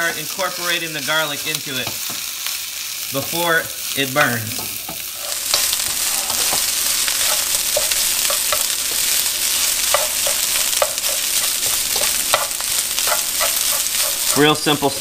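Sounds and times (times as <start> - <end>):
rice sizzling in hot oil: 0.0 - 15.0
metal spatula scraping a pan: 4.8 - 14.8.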